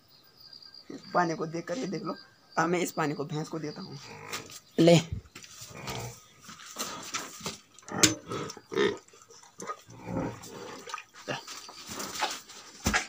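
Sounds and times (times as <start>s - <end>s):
buffalo slurping water: 5.7s - 13.0s.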